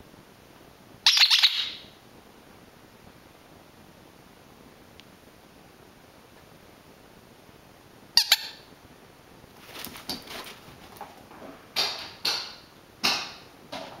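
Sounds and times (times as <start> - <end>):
squeaky dog toy squeaks: 8.2 - 8.6.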